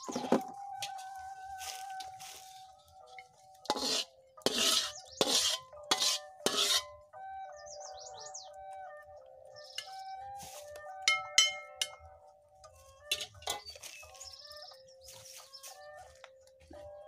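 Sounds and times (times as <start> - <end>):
background music: 0.0 - 17.0
metal spatula scraping wok: 3.6 - 7.0, 13.1 - 13.8.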